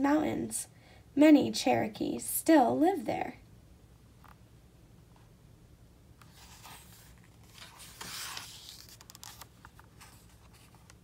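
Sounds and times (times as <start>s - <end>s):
book page turning: 6.2s - 11.0s.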